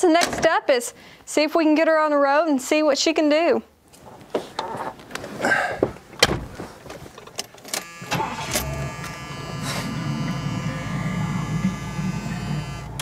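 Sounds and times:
car engine starting and idling: 7.4 - 13.0.

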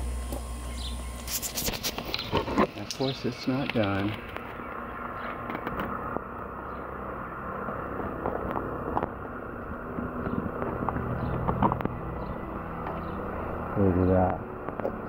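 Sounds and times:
outdoor background noise: 0.0 - 15.0
vehicle engine running: 0.0 - 15.0.

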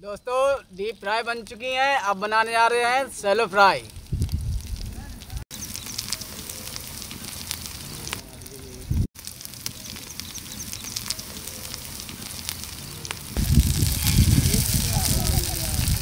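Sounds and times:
food sizzling in oil: 3.2 - 16.0
low rumble: 13.4 - 16.0.

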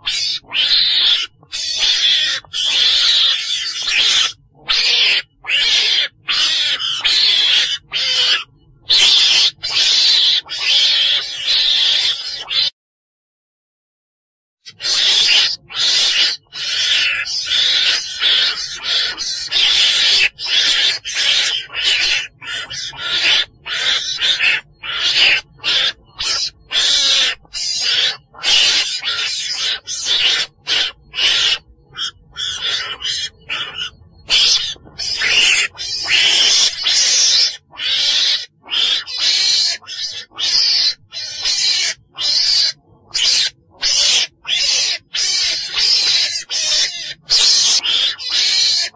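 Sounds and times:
animal high-pitched raspy cries: 0.0 - 12.8, 14.7 - 48.9.

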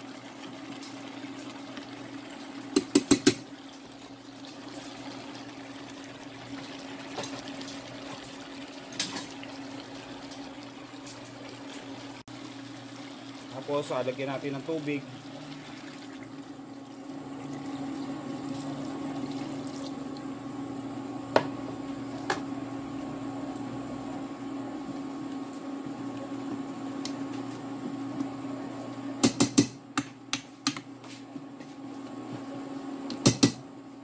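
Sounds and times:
water pouring into pot: 0.1 - 20.2.

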